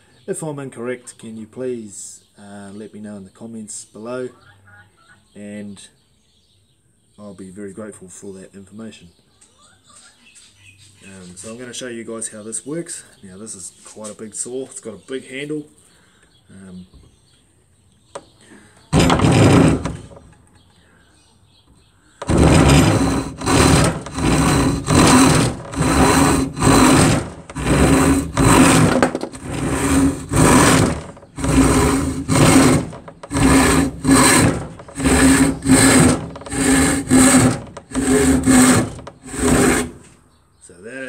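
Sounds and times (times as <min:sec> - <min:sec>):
hand saw rasping through wood: 0:18.9 - 0:20.2, 0:22.2 - 0:40.1.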